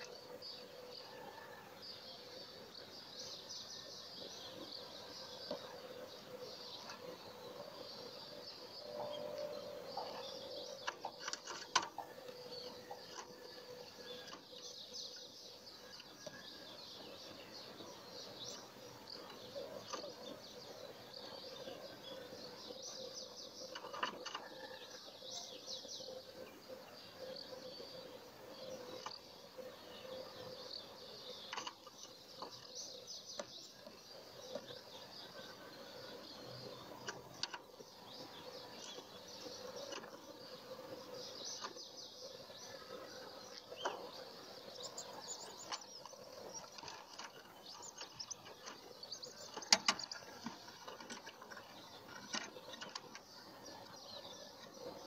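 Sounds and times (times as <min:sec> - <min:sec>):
bird twittering song: 0:00.0 - 0:55.0.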